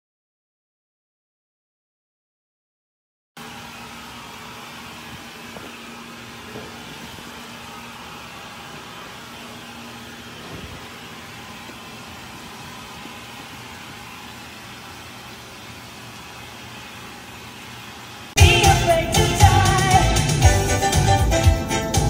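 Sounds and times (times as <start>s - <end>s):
steady hiss with low hum: 3.4s - 21.4s.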